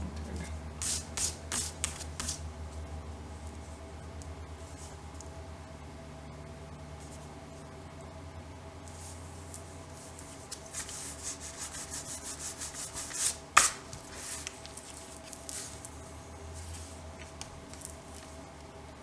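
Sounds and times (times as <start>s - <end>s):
rubbing strokes on paper: 0.8s - 2.4s, 8.9s - 13.4s
soft scrapes: 14.0s - 17.3s.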